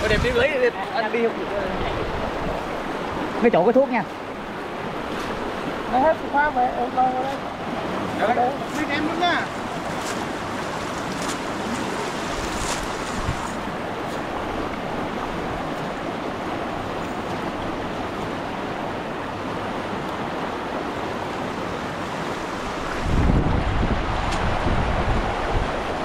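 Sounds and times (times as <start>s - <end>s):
stream rushing over its bed: 0.0s - 26.0s.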